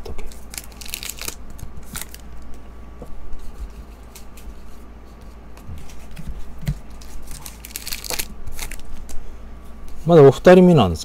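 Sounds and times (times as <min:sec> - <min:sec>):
foil wrapper crinkling: 0:00.2 - 0:02.6, 0:06.8 - 0:09.2.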